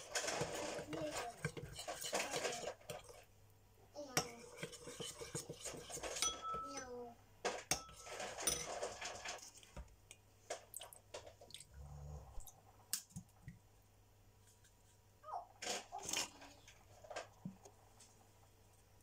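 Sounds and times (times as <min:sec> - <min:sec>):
metal spoon clinking in ceramic bowl: 0:04.2 - 0:06.9, 0:07.7 - 0:08.8.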